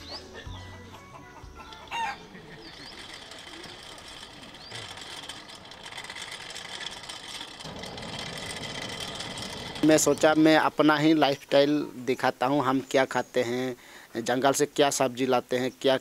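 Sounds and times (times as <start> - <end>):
rooster call: 1.9 - 2.3.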